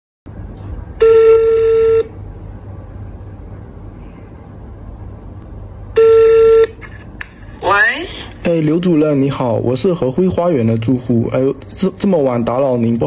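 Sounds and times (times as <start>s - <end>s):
phone ringback beep: 1.0s - 2.1s, 6.0s - 6.8s.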